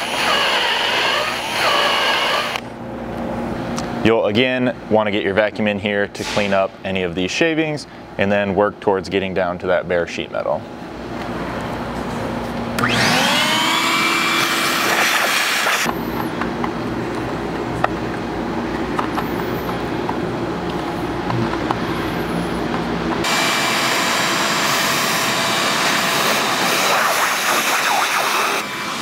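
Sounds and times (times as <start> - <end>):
shop vacuum running: 0.0 - 4.2, 10.5 - 29.0.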